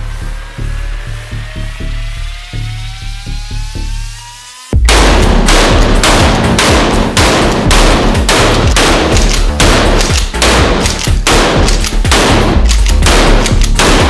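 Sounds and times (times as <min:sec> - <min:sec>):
music with steady bass: 0:00.0 - 0:14.0
shotgun blasts: 0:04.9 - 0:14.0.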